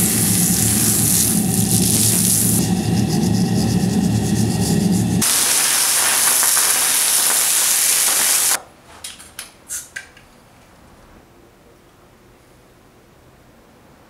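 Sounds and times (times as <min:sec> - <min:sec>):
steam hissing: 0:00.0 - 0:08.6.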